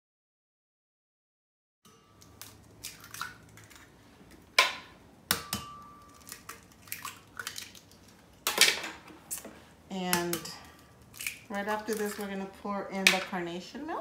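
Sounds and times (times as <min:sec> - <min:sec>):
eggs cracking on glass jar: 0:02.1 - 0:09.4, 0:10.0 - 0:12.3.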